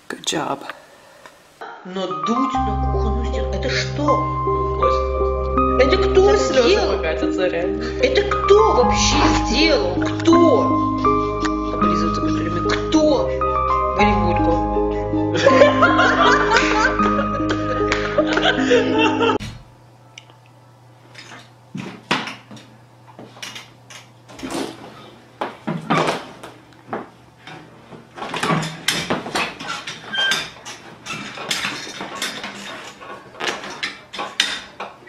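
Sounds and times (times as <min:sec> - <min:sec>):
chair clattering: 0:21.2 - 0:35.0.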